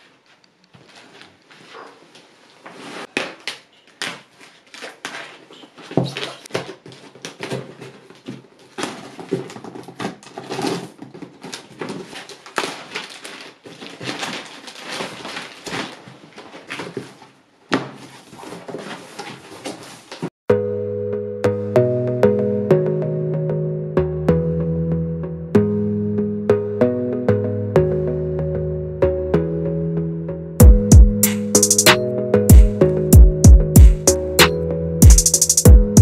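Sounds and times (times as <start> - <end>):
plastic film crinkling: 0.0 - 20.3
cardboard flaps folding: 0.3 - 20.4.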